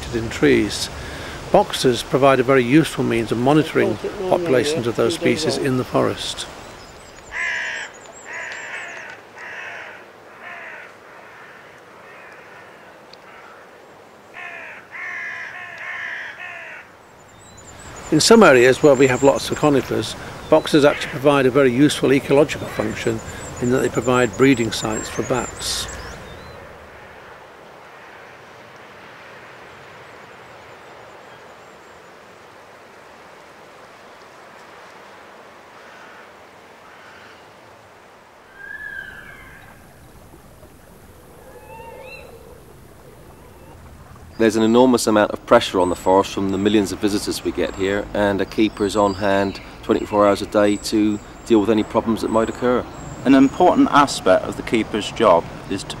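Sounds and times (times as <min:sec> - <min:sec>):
crow cawing: 0:07.3 - 0:17.0, 0:25.8 - 0:29.6, 0:35.7 - 0:37.5, 0:38.5 - 0:40.0
rushing ambient noise: 0:17.7 - 0:27.4, 0:38.6 - 0:48.9
faint high twittering: 0:38.5 - 0:46.2.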